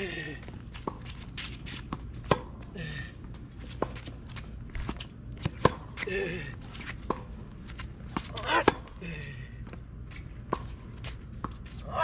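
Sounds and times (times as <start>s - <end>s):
shoes squeaking on court: 0.0s - 12.0s
racket hitting tennis ball: 5.4s - 6.0s, 8.1s - 8.9s.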